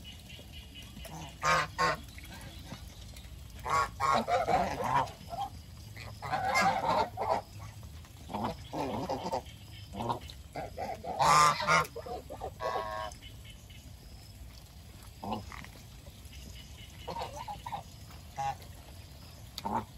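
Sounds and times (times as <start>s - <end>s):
geese honking: 0.7s - 2.0s, 3.6s - 5.5s, 6.2s - 7.5s, 8.3s - 13.1s, 16.8s - 17.8s.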